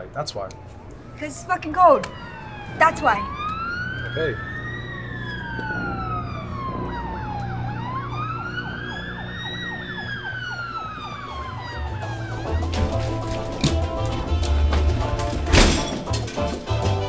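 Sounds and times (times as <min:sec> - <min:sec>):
police siren wailing: 0:00.1 - 0:17.0
fast yelping siren warble: 0:01.1 - 0:12.8.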